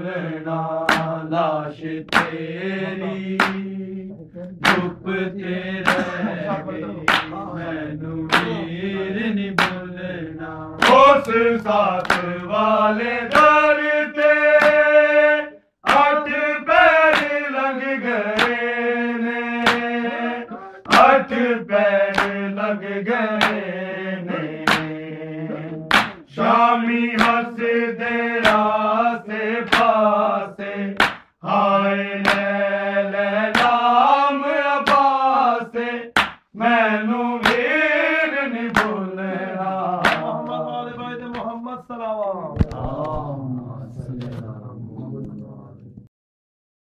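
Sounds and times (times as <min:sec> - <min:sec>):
men chanting: 0:00.0 - 0:45.3
hands slapping chest: 0:00.9 - 0:01.2, 0:02.1 - 0:02.5, 0:03.2 - 0:03.7, 0:04.6 - 0:05.0, 0:05.8 - 0:06.2, 0:07.0 - 0:07.4, 0:08.3 - 0:08.6, 0:09.6 - 0:09.8, 0:10.8 - 0:12.4, 0:13.3 - 0:13.6, 0:14.2 - 0:14.9, 0:15.9 - 0:16.1, 0:17.1 - 0:17.4, 0:18.3 - 0:18.6, 0:19.6 - 0:20.0, 0:20.8 - 0:21.2, 0:22.1 - 0:22.4, 0:23.4 - 0:23.6, 0:24.5 - 0:25.0, 0:25.9 - 0:26.2, 0:27.2 - 0:27.5, 0:28.4 - 0:28.7, 0:29.7 - 0:30.0, 0:31.0 - 0:31.4, 0:32.2 - 0:32.5, 0:33.5 - 0:33.8, 0:34.8 - 0:35.1, 0:36.2 - 0:36.5, 0:37.4 - 0:37.7, 0:38.7 - 0:39.0, 0:40.0 - 0:40.3.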